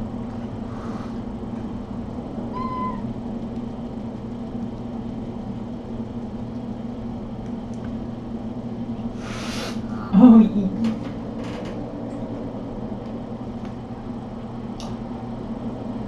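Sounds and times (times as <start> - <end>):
appliance electrical hum: 0.0 - 16.0
burst of hissing: 9.2 - 9.9.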